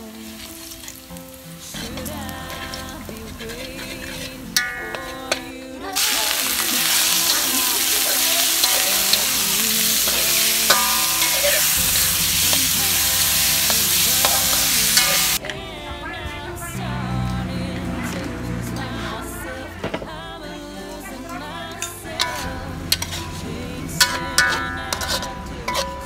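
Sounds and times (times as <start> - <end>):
food sizzling in a pan: 0.0 - 20.2, 20.8 - 26.0
spatula scraping and clicking: 24.0 - 26.0.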